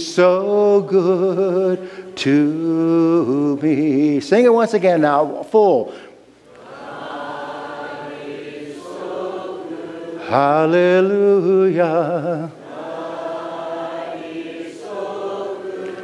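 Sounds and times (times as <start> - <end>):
congregation singing a hymn: 0.0 - 5.9, 6.5 - 16.0
man singing with vibrato: 0.0 - 5.9, 10.0 - 13.0.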